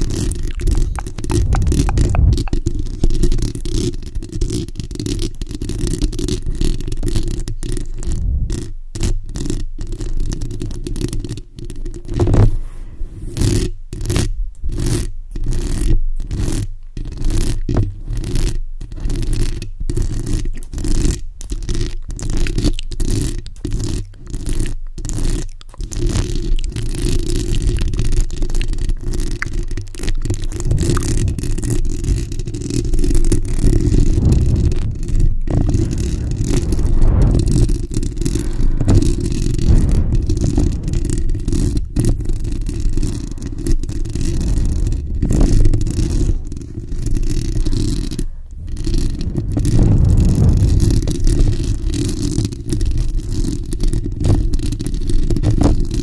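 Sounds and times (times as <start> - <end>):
fingernails scratching microphone grille: 0.0 - 4.6, 30.1 - 56.0.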